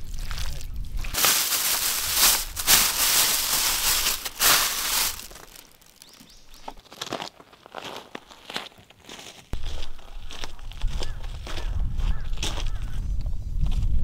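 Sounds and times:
plastic bag crinkling: 1.1s - 7.2s.

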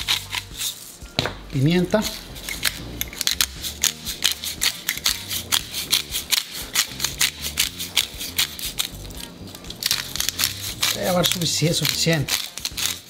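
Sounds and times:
pepper mill grinding: 0.0s - 13.0s.

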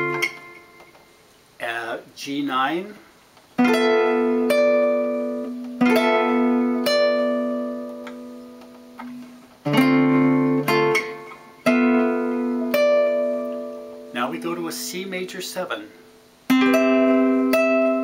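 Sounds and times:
classical guitar fingerstyle chords: 0.0s - 1.0s, 3.6s - 18.0s.

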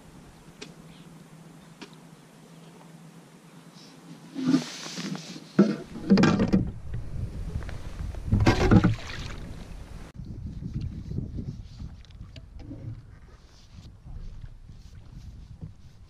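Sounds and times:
wind rumble on microphone: 5.8s - 16.0s.

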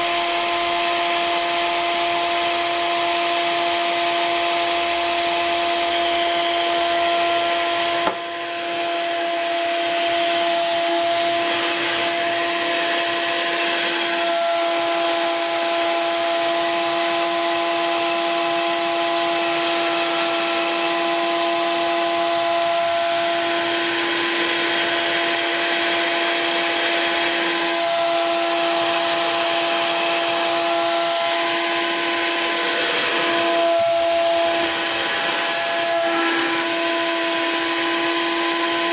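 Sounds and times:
small electric motor whining: 0.0s - 38.9s.

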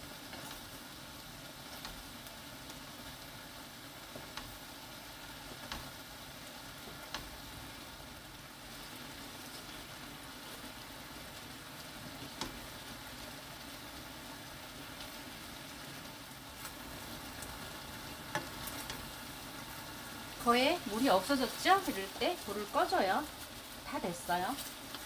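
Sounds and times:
liquid bubbling and sizzling in a pan: 0.0s - 25.0s
wooden spatula clicking on pan: 1.7s - 2.1s, 4.1s - 4.7s, 5.5s - 6.1s, 6.8s - 7.4s, 12.2s - 12.8s, 18.2s - 19.1s.

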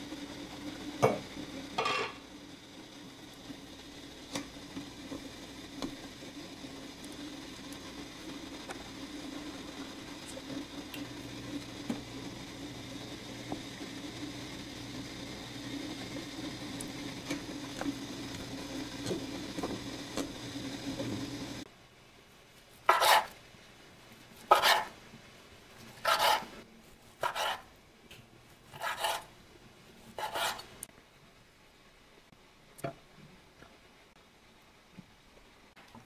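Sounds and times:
steady hum with faint clicks: 0.0s - 26.7s, 27.8s - 28.6s, 29.4s - 36.0s
utensil scraping cookware: 1.8s - 2.2s, 22.9s - 23.3s, 24.5s - 24.9s, 26.0s - 26.6s, 27.2s - 27.7s, 28.7s - 29.3s, 30.1s - 30.7s.

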